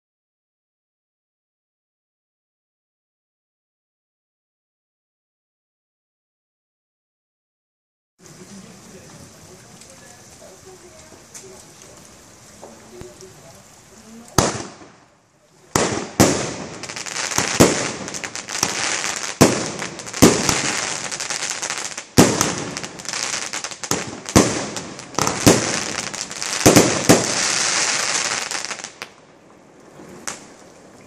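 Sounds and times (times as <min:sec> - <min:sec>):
firework crackle: 0:08.2 - 0:31.0
firework bangs: 0:14.2 - 0:29.2.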